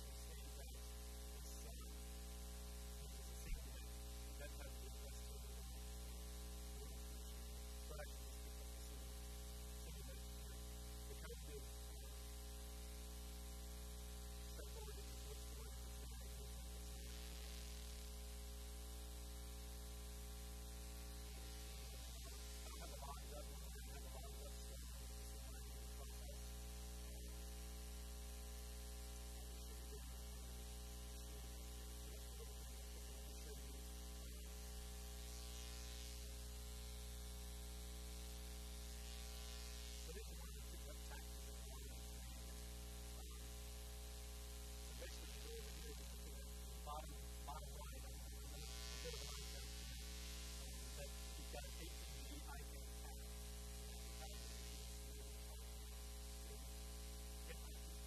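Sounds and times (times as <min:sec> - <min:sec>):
recording hiss: 0:00.0 - 0:02.0, 0:03.0 - 0:09.0, 0:09.7 - 0:12.2, 0:14.3 - 0:18.4, 0:20.6 - 0:27.3, 0:29.5 - 0:30.5, 0:31.2 - 0:36.5, 0:38.8 - 0:43.5, 0:44.1 - 0:56.7, 0:57.4 - 0:58.0
electrical mains hum: 0:00.0 - 0:58.0.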